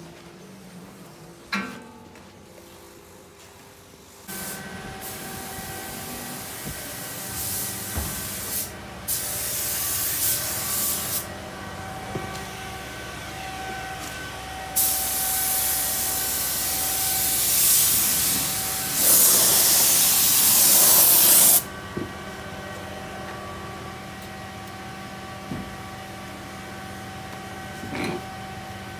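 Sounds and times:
spray gun hissing: 4.3 - 11.3, 14.8 - 21.6.

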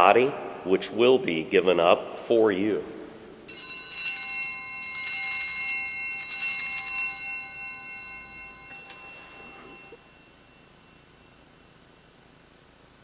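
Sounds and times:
hand bells jingling: 3.5 - 11.8.

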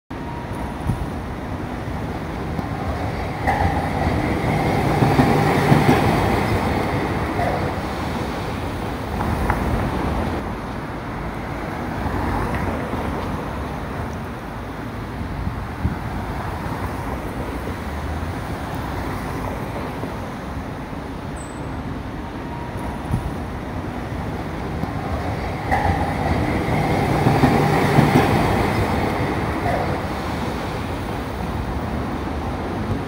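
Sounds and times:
road traffic: 0.1 - 33.0
streetcar motor hum and wheel whine: 0.1 - 33.0.

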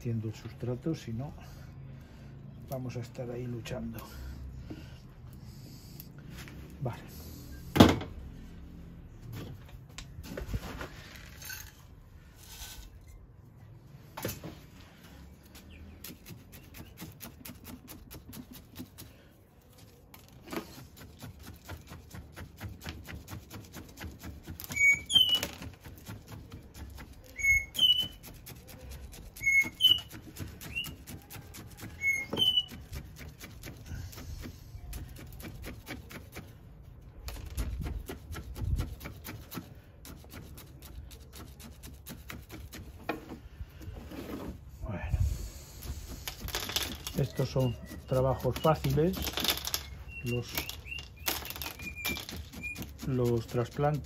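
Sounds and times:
bird chirping: 47.1 - 53.0.

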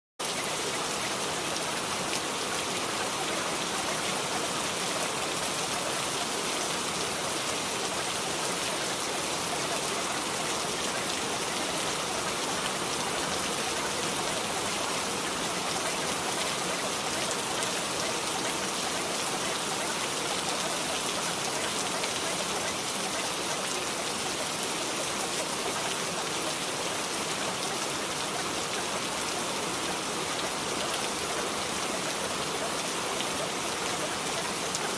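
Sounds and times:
steady rain hiss: 0.2 - 34.9.

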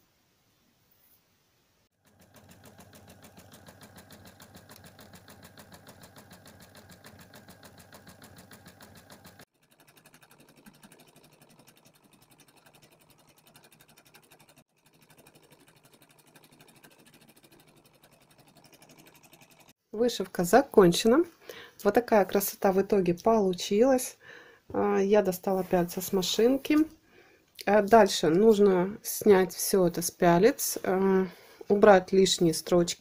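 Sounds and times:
embroidery machine needle ticking: 2.1 - 14.6.

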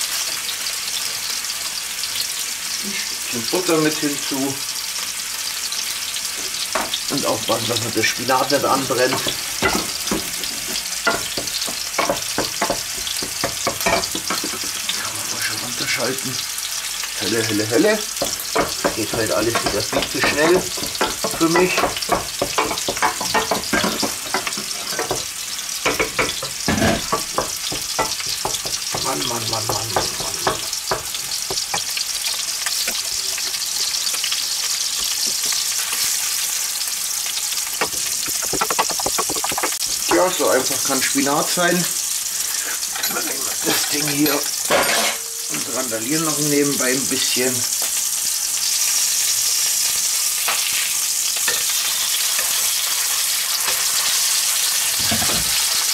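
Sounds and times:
meat sizzling in a pan: 0.0 - 55.9
wooden spoon knocking in pot: 9.1 - 14.8, 18.2 - 31.9, 37.8 - 40.2
knock: 37.8 - 39.8.

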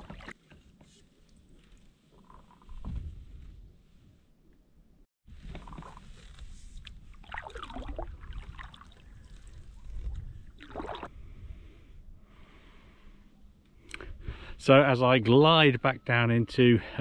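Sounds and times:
water splashes and drips: 6.8 - 11.1.

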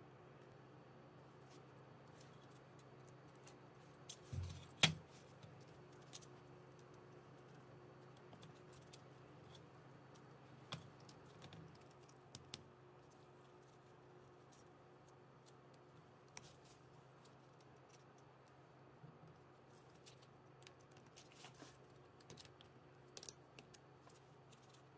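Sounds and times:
faint steady hum: 0.0 - 24.9
small parts clicking: 22.2 - 23.8.

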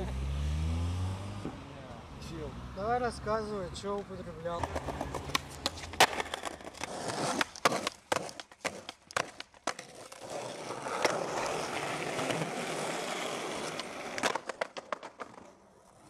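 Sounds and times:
skateboard wheels rolling on paving: 3.8 - 16.0
skateboard clacks: 4.6 - 16.0.

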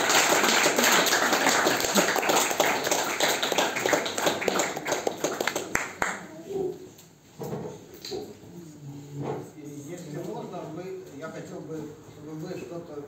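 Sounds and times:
small audience applauding: 0.0 - 6.4.

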